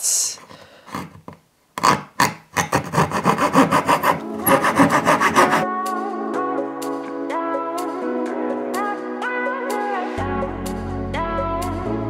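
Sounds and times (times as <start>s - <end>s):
saw cutting wood: 1.8s - 5.7s
background music: 3.2s - 12.0s.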